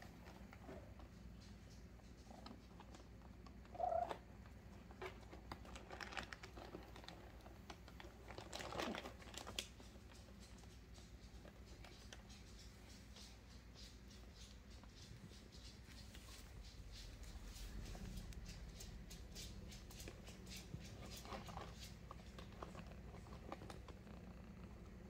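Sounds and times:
cats rustling in cardboard box: 0:00.0 - 0:24.0
cat meowing: 0:03.7 - 0:04.2.

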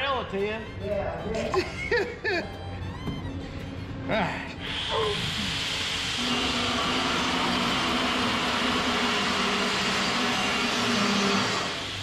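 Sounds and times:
machinery hissing: 0:04.4 - 0:12.0.

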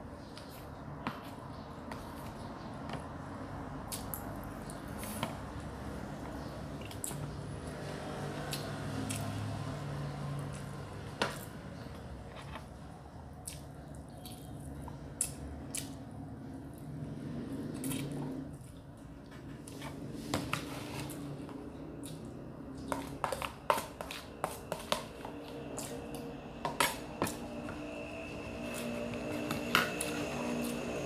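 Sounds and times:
chewing and mouth smacks: 0:22.0 - 0:23.1.

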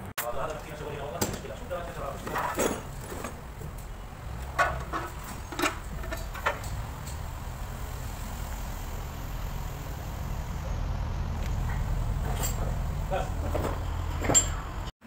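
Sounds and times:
low mechanical rumble: 0:00.0 - 0:14.9.

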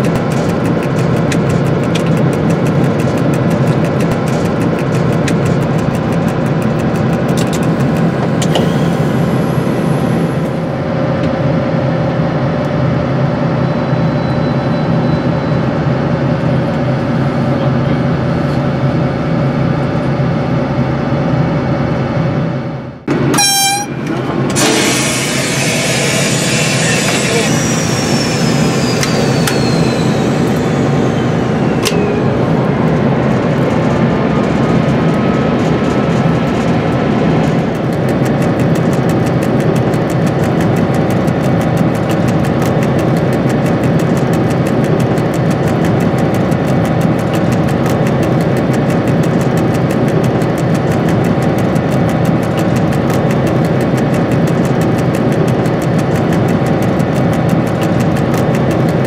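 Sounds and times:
diesel locomotive engine running: 0:00.0 - 0:59.0
high whine falling in pitch: 0:23.0 - 0:37.8.

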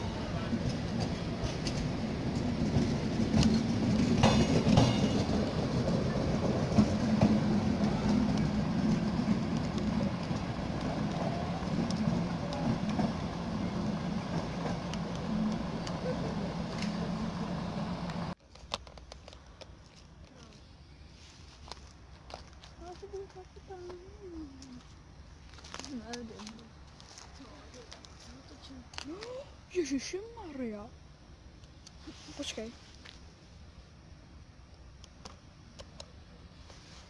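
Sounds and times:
train coaches rumbling past: 0:00.0 - 0:18.4
train wheels clicking over rail joints: 0:00.0 - 0:19.8
outdoor ambience: 0:00.0 - 0:37.0.

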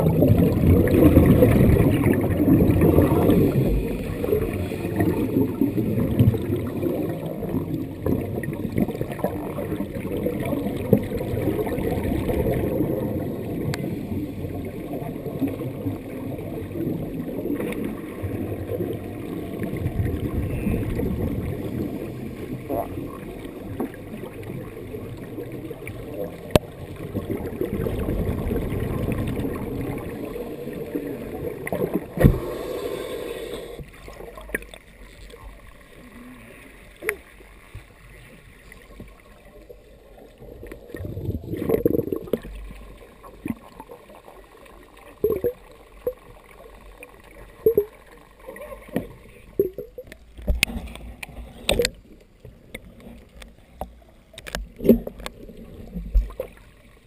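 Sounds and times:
underwater breath bubbles: 0:00.0 - 0:34.6, 0:40.6 - 0:42.9.

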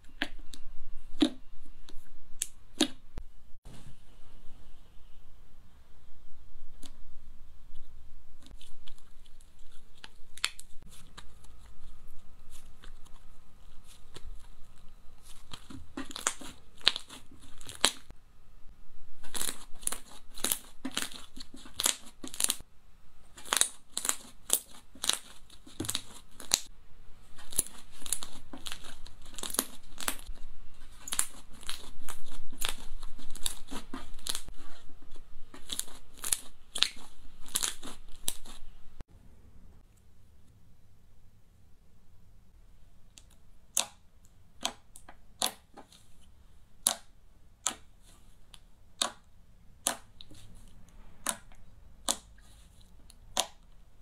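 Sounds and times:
slime crackling and popping: 0:08.5 - 0:18.1, 0:19.2 - 0:22.6, 0:23.3 - 0:26.7, 0:27.4 - 0:34.5, 0:35.5 - 0:38.6, 0:51.2 - 0:53.6.

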